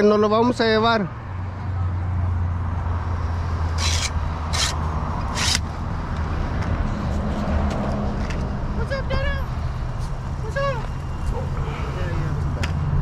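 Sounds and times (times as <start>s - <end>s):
phone handling scrapes: 3.8s - 5.6s.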